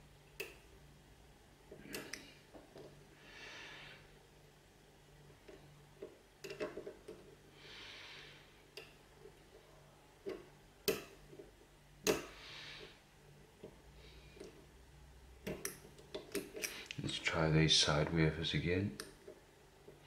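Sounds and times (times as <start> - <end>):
slow breathing: 3.1 - 4.2, 7.5 - 8.6, 12.3 - 13.1.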